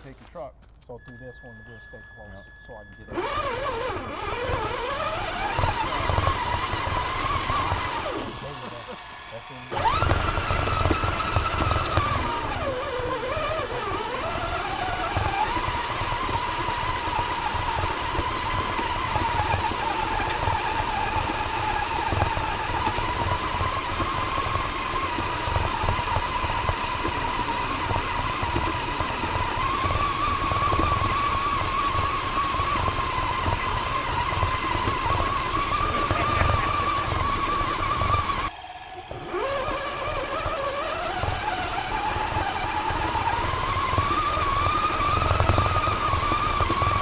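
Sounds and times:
tyres crunching on gravel: 0.0 - 1.4
electric motor whining: 1.0 - 47.0.

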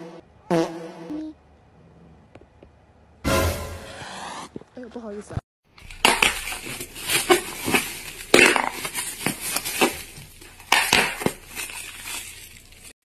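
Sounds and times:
plastic bag crinkling: 5.8 - 13.0.

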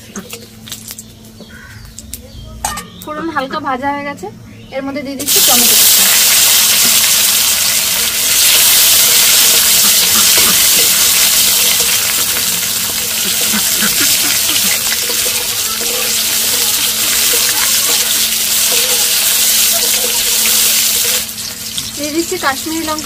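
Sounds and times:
tomatoes sizzling in hot oil: 5.2 - 23.0.

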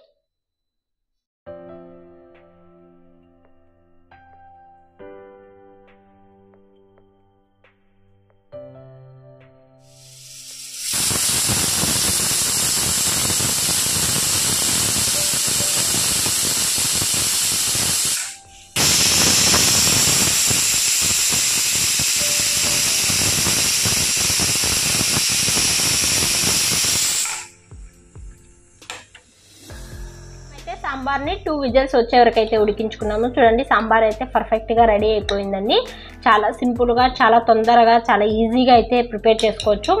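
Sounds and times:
pressure cooker whistling: 10.1 - 27.6.

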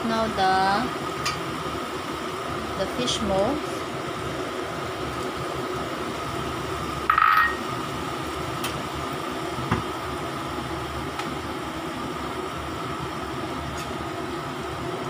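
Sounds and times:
faint steady whine: 0.0 - 15.0
kitchen fan hum: 0.0 - 15.0
soup boiling: 3.6 - 15.0.

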